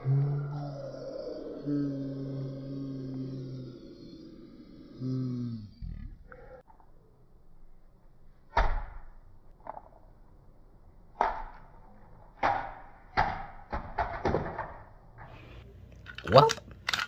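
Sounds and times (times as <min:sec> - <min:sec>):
plastic toy tumbling down stairs: 0:13.2 - 0:14.8.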